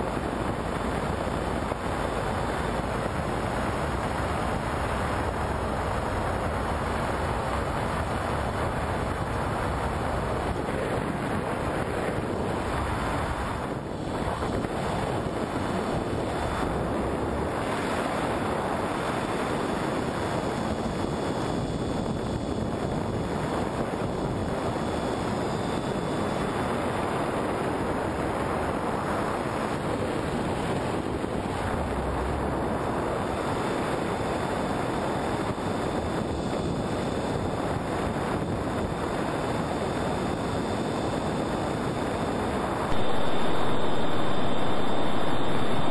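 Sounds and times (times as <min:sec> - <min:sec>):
rushing wind noise: 0:00.0 - 0:45.9
faint steady high tone: 0:42.8 - 0:45.9.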